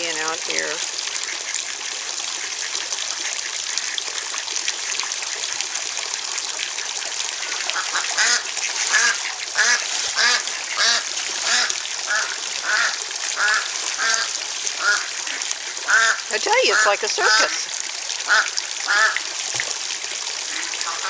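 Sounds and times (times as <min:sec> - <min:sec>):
pond waterfall and fountain splashing: 0:00.0 - 0:21.0
duck quacking: 0:07.8 - 0:17.6, 0:18.3 - 0:19.2, 0:20.5 - 0:21.0.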